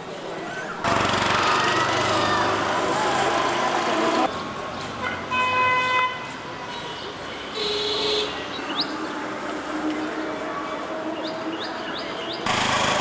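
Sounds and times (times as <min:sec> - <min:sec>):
motor vehicle running: 0:00.8 - 0:04.9, 0:12.4 - 0:13.0
vehicle horn: 0:07.5 - 0:08.4.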